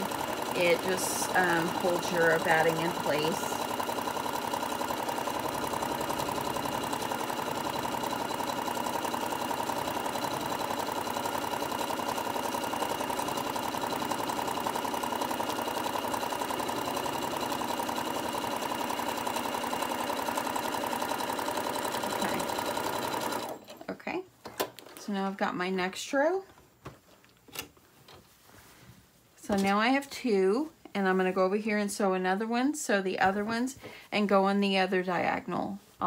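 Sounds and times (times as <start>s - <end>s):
electric sewing machine stitching: 0.0s - 23.9s.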